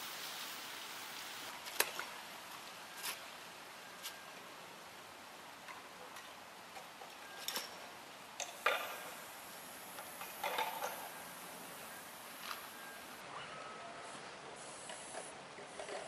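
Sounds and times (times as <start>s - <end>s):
spray paint can hissing: 14.6s - 15.9s.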